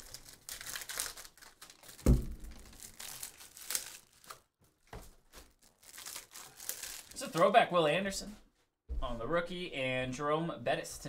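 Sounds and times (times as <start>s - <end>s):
foil wrapper crinkling and tearing: 0.0s - 7.5s
dull thump: 2.0s - 2.5s.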